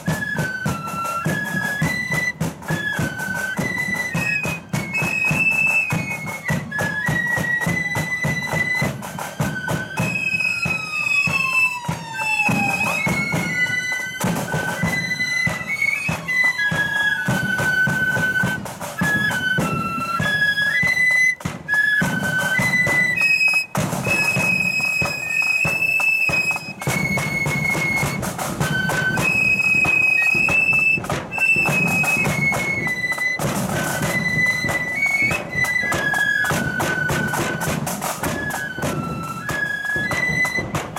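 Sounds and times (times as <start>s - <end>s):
flute band playing: 0.0s - 40.9s
steady drum beat: 0.0s - 40.9s.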